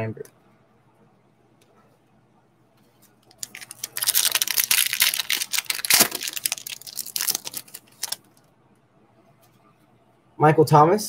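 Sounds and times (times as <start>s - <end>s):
plastic wrapper tearing and crinkling: 3.3s - 8.3s.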